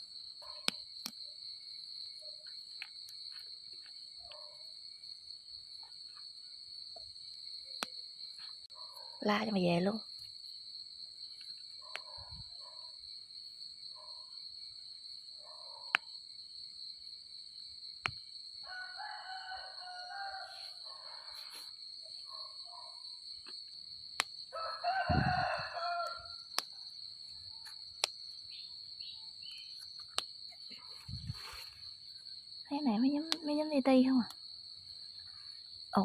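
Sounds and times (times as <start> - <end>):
night insects droning: 0.0 - 36.0
rooster crowing: 18.6 - 21.3, 24.5 - 26.4.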